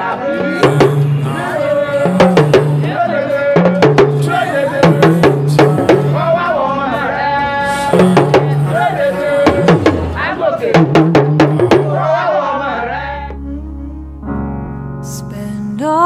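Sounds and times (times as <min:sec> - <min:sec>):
sliding lead melody: 0:00.3 - 0:16.0
drum beat: 0:00.5 - 0:06.4, 0:07.8 - 0:12.3
repeating bass line: 0:00.5 - 0:12.4, 0:13.0 - 0:15.0.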